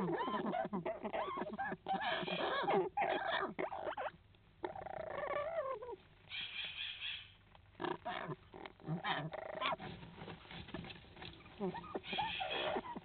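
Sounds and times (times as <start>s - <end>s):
parrots calling: 0.0s - 9.8s, 11.5s - 13.0s.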